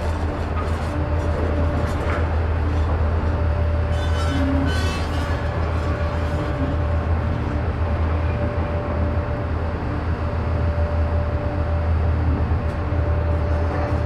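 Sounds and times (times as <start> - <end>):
mining shovel rumbling: 0.0 - 8.6
constant machine whine: 0.0 - 14.0.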